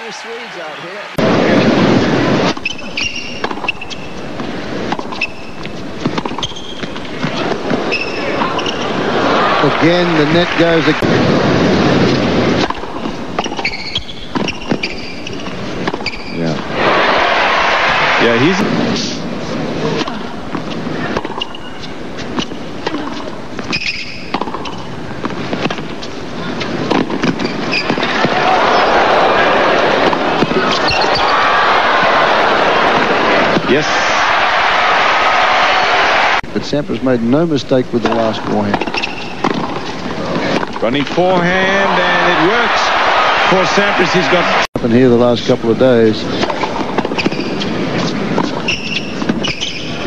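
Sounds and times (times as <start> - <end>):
crowd applauding and cheering: 0.0 - 1.6, 9.0 - 11.2, 16.7 - 18.6, 28.0 - 36.4, 41.4 - 44.7
crowd noise: 0.0 - 50.0
tennis ball hit by rackets: 22.3 - 25.9, 26.6 - 28.4.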